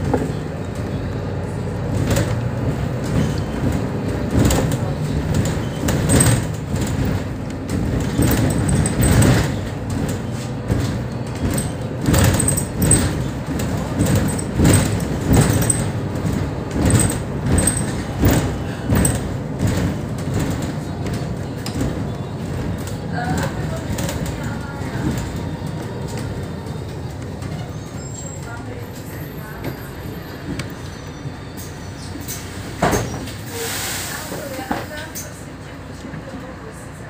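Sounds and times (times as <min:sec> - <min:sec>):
bus engine and road noise: 0:00.0 - 0:37.0
cabin panels rattling: 0:02.0 - 0:27.7.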